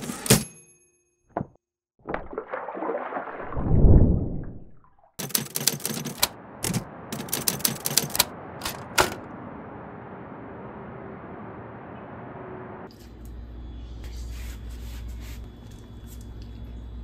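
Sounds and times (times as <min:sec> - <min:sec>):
typewriter keys clacking: 0:05.2 - 0:09.2.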